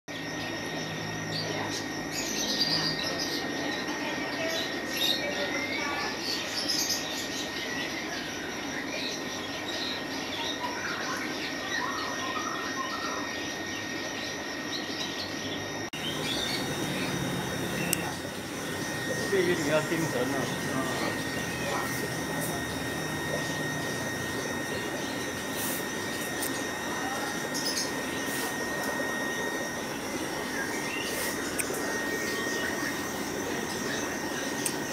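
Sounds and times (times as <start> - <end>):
small birds chirping: 1.3 - 34.9
air pumps hissing: 16.0 - 34.9
thin high tone: 16.0 - 34.9.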